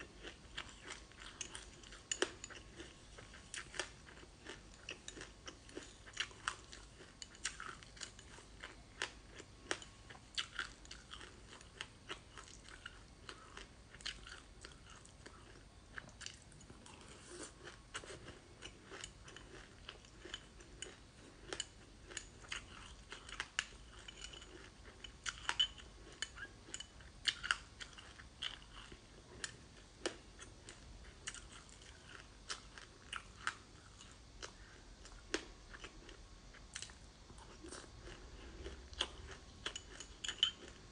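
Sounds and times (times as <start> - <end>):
crunching and chewing ice: 0.0 - 40.9
metal spoon scraping glass bowl: 39.8 - 40.6.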